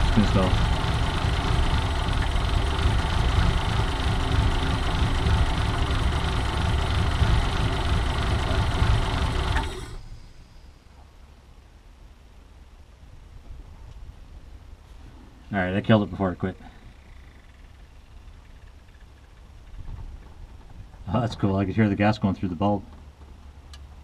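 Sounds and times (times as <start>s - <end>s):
car engine idling: 0.0s - 10.8s.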